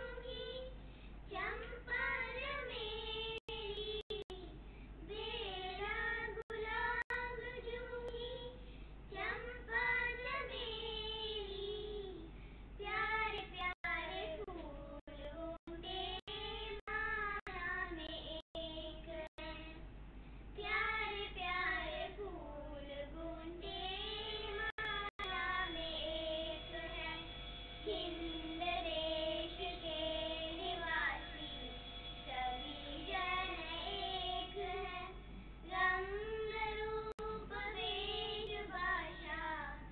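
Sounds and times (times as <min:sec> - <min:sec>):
girls singing in unison: 0:00.0 - 0:19.8, 0:20.6 - 0:39.9
steady held tones: 0:23.4 - 0:39.9.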